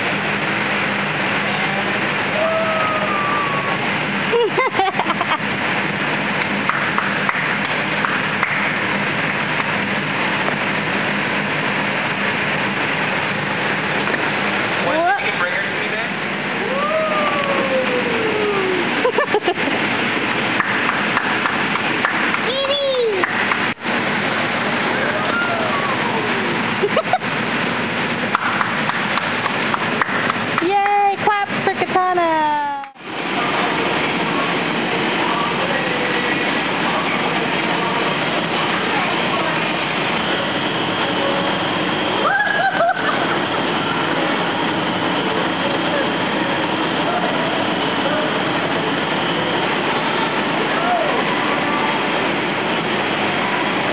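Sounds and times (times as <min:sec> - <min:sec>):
indoor play hall noise: 0:00.0 - 0:31.6, 0:32.2 - 0:53.9
air blower rushing: 0:00.0 - 0:53.9
short wavering voice sounds: 0:01.5 - 0:03.8, 0:16.6 - 0:19.1
long falling vocal call: 0:01.5 - 0:03.9, 0:16.6 - 0:19.1.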